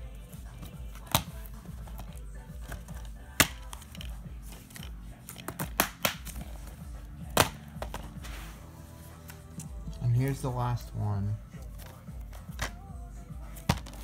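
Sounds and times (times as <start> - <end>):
plastic cases clicking: 0.6 - 6.7, 11.6 - 12.9, 13.5 - 14.0.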